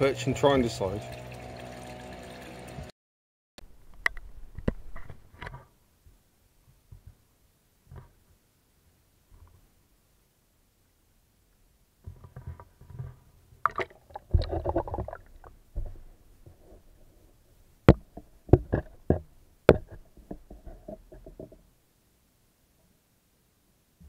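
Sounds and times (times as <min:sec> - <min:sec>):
water sloshing: 0:13.6 - 0:17.3
camera handling bumps and scrapes: 0:17.9 - 0:21.6
sharp knocks against camera: 0:17.9 - 0:21.6.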